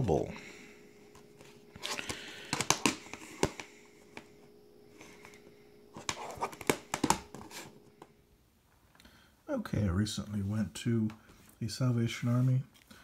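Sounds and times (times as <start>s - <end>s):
plastic case clicks and knocks: 2.5s - 3.6s, 6.0s - 7.4s.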